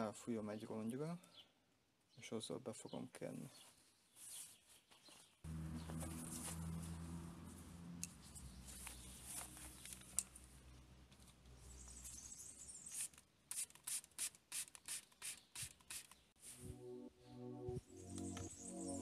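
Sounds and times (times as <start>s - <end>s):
spray bottle squirting: 12.8s - 16.3s.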